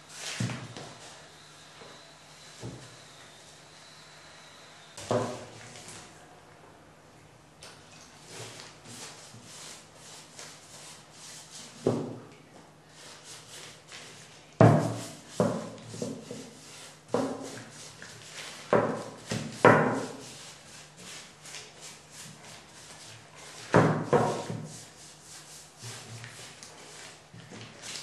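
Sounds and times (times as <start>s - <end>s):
brush rubbing: 20.0s - 27.2s.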